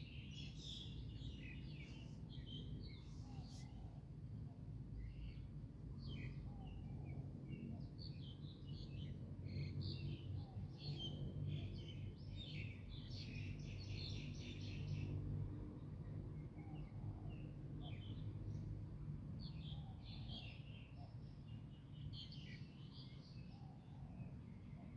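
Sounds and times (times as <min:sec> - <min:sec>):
small birds chirping: 0:00.0 - 0:04.2.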